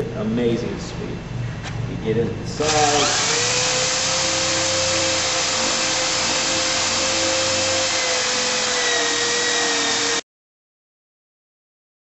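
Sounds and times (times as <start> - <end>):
drill motor whine: 2.6 - 10.2.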